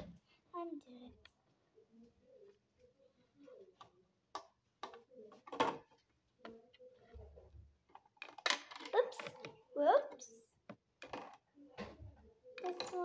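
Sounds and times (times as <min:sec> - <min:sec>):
plastic toys clicking and knocking: 0:03.8 - 0:07.2, 0:07.8 - 0:13.0.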